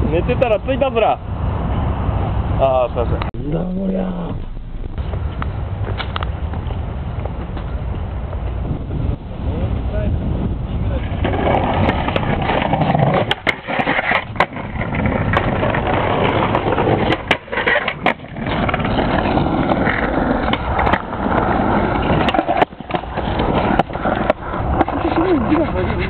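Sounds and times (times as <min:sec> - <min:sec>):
skateboard wheels rolling on paving: 0:00.0 - 0:26.0
skateboard clacking on ground: 0:10.9 - 0:26.0.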